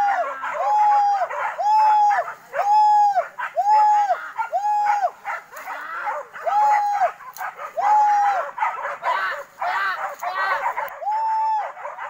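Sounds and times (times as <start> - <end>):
fainter barks: 4.3 - 7.8, 8.4 - 11.0.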